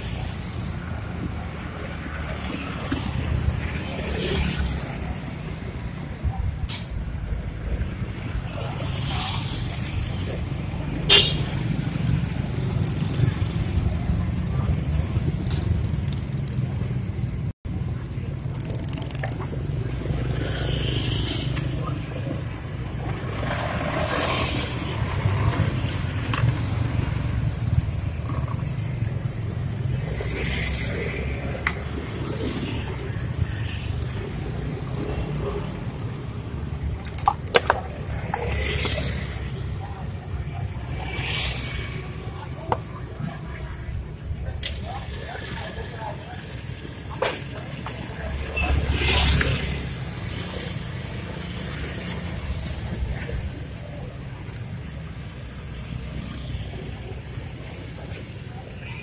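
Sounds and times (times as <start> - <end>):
road traffic rumble: 0.0 - 59.0.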